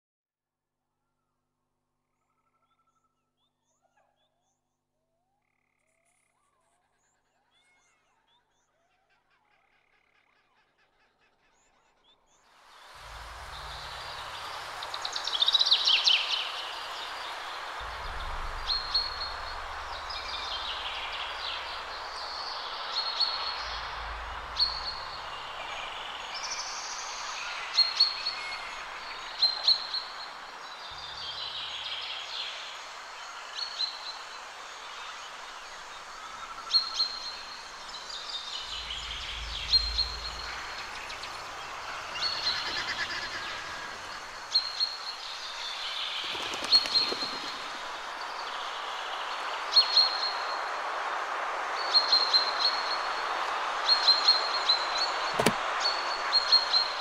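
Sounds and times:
steady outdoor hiss: 12.2 - 57.0
low rumble: 16.8 - 26.7, 38.5 - 41.9.

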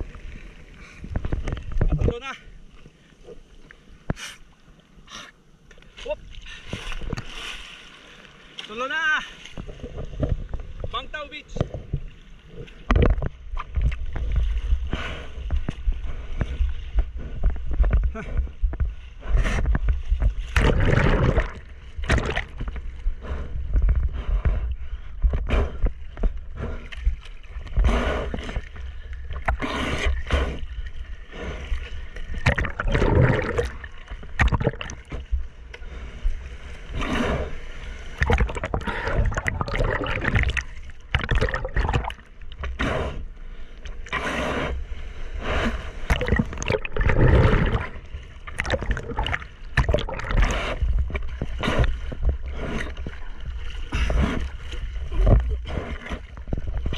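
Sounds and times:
water splashing against surfboard: 5.8 - 24.6, 25.2 - 43.2, 45.4 - 56.9
low rumble: 11.5 - 56.9.

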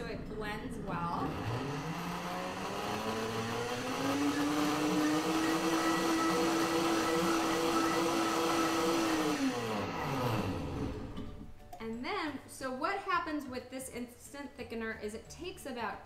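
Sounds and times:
blender motor running: 0.7 - 11.3.

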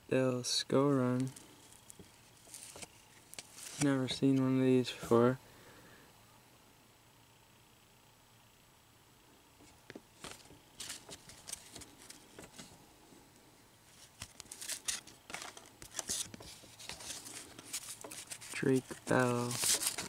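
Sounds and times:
cards being flipped: 1.1 - 4.5, 9.6 - 12.7, 13.9 - 20.0.

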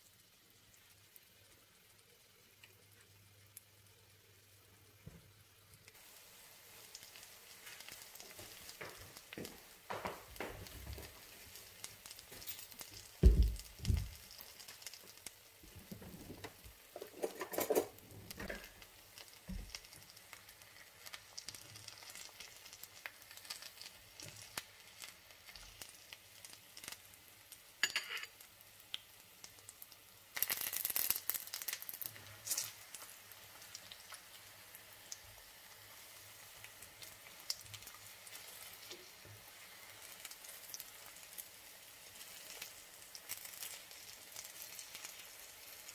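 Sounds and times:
food sizzling in oil: 0.0 - 45.9
loud thump: 13.2 - 14.2.

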